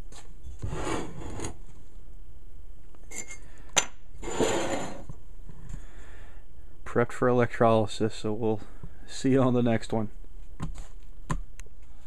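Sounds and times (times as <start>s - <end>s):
metal scraping on workbench: 0.6s - 1.6s, 4.2s - 5.1s.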